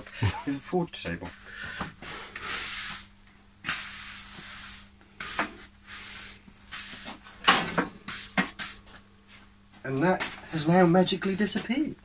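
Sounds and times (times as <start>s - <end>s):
broom sweeping concrete floor: 1.3s - 9.5s.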